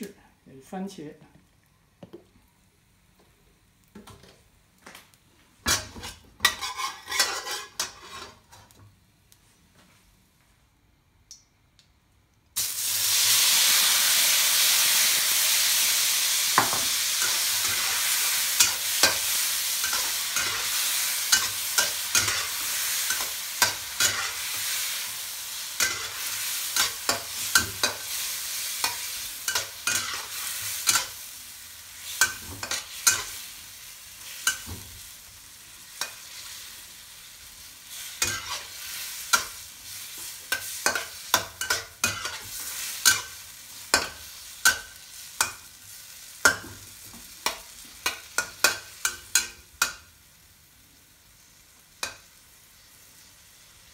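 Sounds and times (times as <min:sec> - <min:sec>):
food sizzling in hot oil: 0:05.6 - 0:08.6, 0:12.6 - 0:53.9
metal spatula scraping wok: 0:05.7 - 0:08.7, 0:17.2 - 0:25.2, 0:25.8 - 0:31.2, 0:32.0 - 0:33.4, 0:38.0 - 0:45.5.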